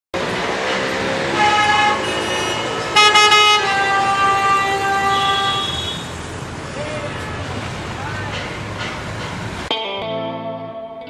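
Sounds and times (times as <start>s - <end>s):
city street traffic: 0.1s - 10.8s
car horns honking: 1.2s - 7.8s.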